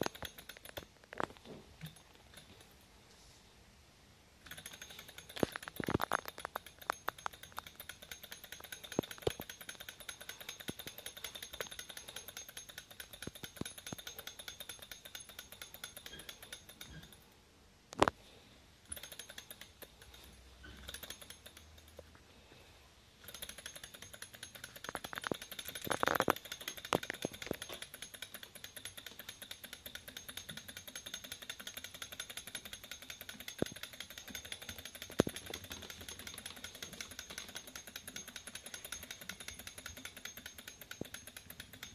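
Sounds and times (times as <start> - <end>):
stirling engine mechanical ticking: 4.5 - 17.1.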